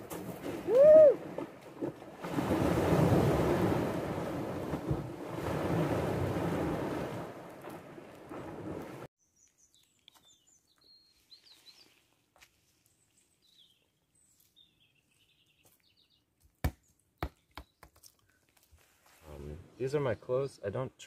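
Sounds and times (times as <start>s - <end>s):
waves on a pebble shore: 2.2s - 9.1s
small birds chirping: 9.2s - 18.6s.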